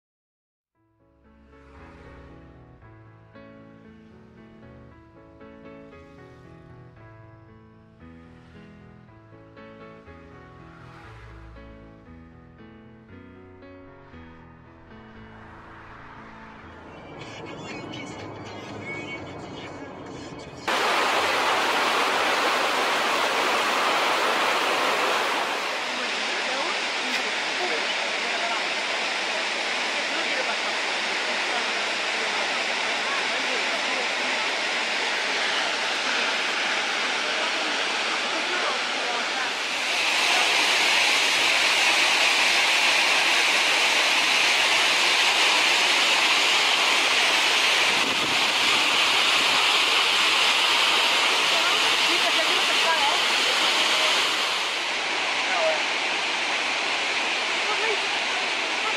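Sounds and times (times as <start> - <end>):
rush of falling water: 20.7 - 58.9.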